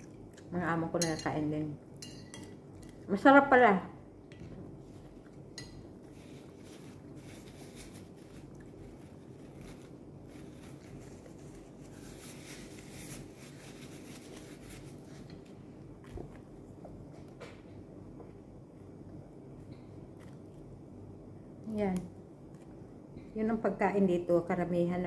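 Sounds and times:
low room hum: 0.0 - 25.0
chewing: 8.4 - 9.8.

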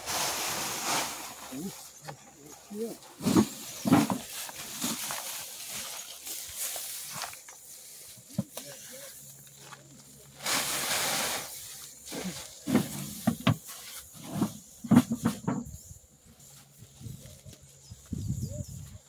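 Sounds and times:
sack rustling: 0.0 - 1.8.

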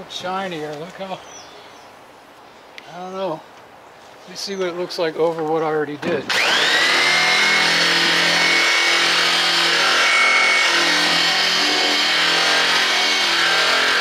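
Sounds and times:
drum polisher motor whine: 6.3 - 14.0.

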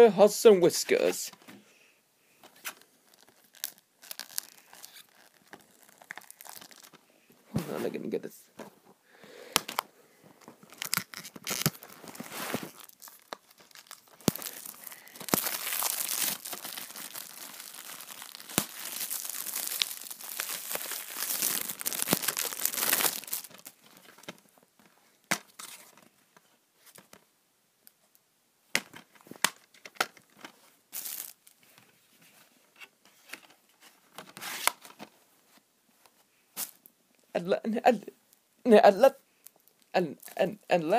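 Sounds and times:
plastic wrap crinkling: 2.6 - 7.1, 9.6 - 24.4, 31.0 - 31.6.

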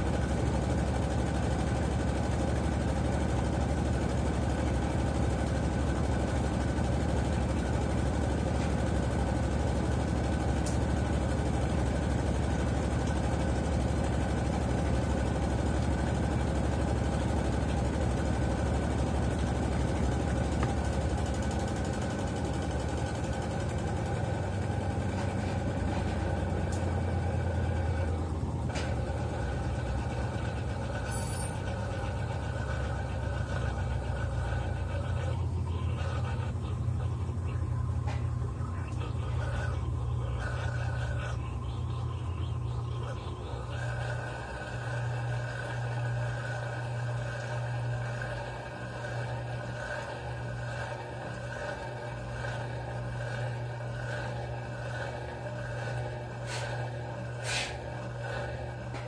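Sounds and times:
washing machine motor hum: 0.0 - 59.0.

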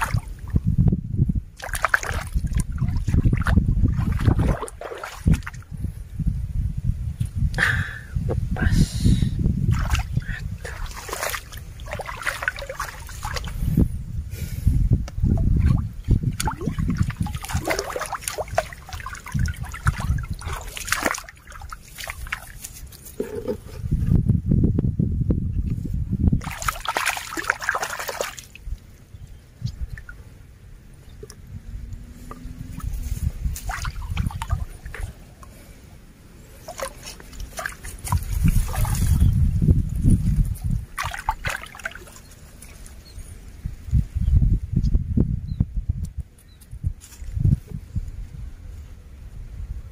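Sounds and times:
stream water sloshing and splashing: 0.0 - 0.6, 1.5 - 5.8, 9.6 - 13.9, 15.2 - 23.8, 26.4 - 43.7.

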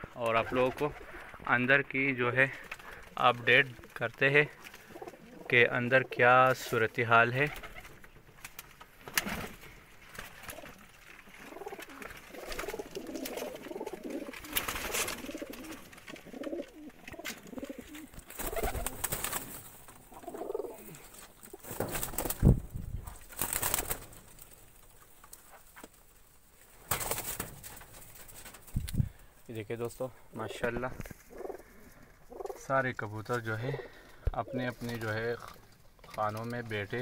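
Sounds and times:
pigeons cooing: 4.6 - 5.6, 10.4 - 21.9, 31.2 - 32.7
rustling: 7.5 - 37.0.

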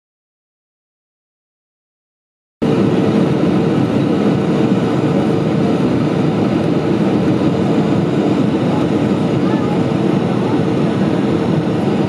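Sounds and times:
constant hum: 2.6 - 12.0
jet engine drone: 2.6 - 12.0.

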